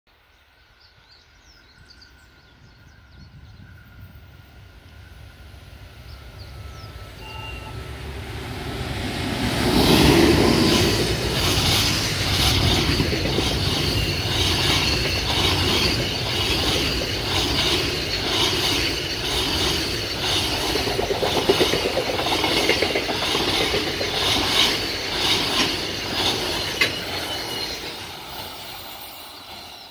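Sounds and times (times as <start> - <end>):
electric locomotive passing: 0.8 - 29.9
wheels clattering over rail joints: 9.7 - 28.6.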